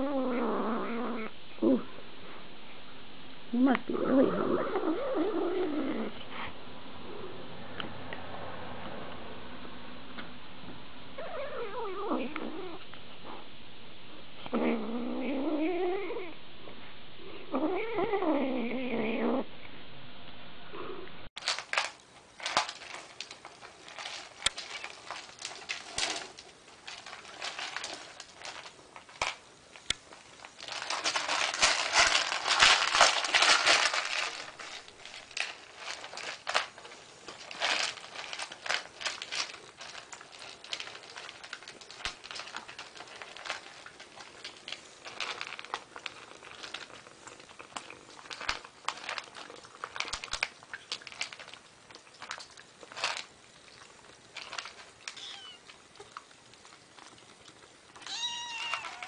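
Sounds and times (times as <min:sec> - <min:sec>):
kittens crunching dry kibble: 0:21.4 - 0:59.0.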